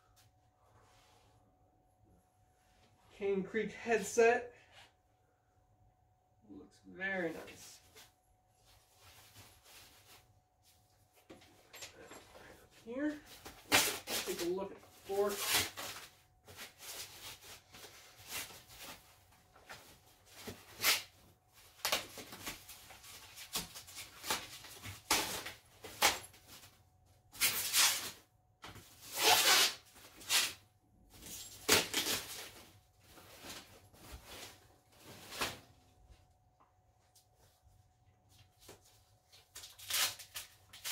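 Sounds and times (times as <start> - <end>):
packaging rustling and tearing: 31.2 - 35.7, 39.4 - 40.9.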